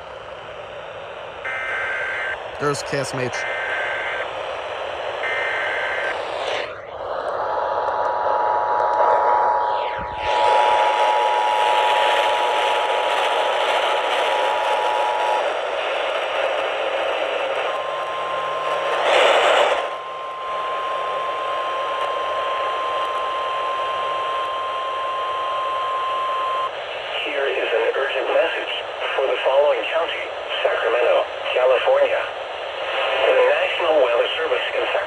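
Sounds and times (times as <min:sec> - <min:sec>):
loud static crackle: 0:01.3 - 0:23.3
steady weather-alert tone: 0:01.5 - 0:04.3, 0:05.2 - 0:06.3, 0:17.6 - 0:26.7
radio static: 0:01.5 - 0:04.4, 0:25.1 - 0:35.0.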